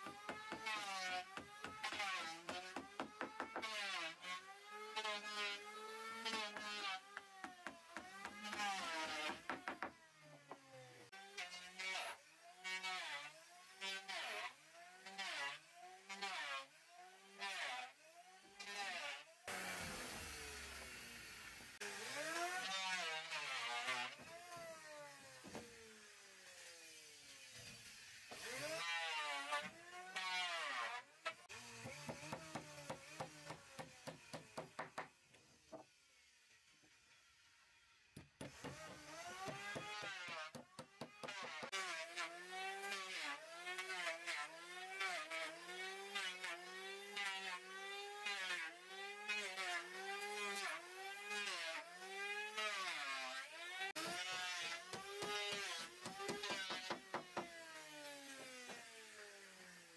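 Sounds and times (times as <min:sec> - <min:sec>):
power tool motor whine: 0:19.4 - 0:28.7.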